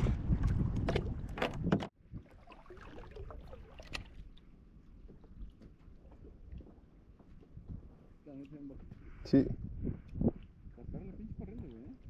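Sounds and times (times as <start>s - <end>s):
wind on microphone: 0.0s - 2.4s, 7.4s - 8.0s, 8.7s - 12.0s
water lapping against kayak hull: 0.0s - 9.2s.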